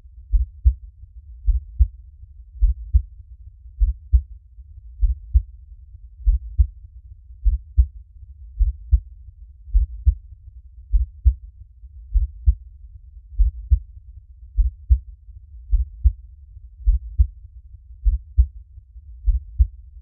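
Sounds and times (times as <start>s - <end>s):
faint low rumble: 0.0s - 20.0s
heartbeat thumps: 0.3s - 0.8s, 1.4s - 2.0s, 2.6s - 3.1s, 3.8s - 4.3s, 5.0s - 5.5s, 6.2s - 6.7s, 7.4s - 7.9s, 8.6s - 9.1s, 9.7s - 10.2s, 10.9s - 11.4s, 12.1s - 12.6s, 13.4s - 13.8s, 14.6s - 15.1s, 15.7s - 16.2s, 16.8s - 17.4s, 18.0s - 18.6s, 19.2s - 19.8s.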